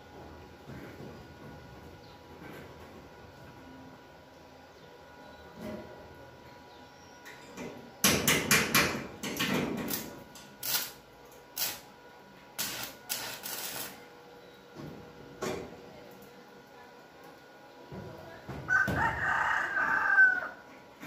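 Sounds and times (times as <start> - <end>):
electric arc welding crackling: 9.9 - 11.9, 12.6 - 14.0.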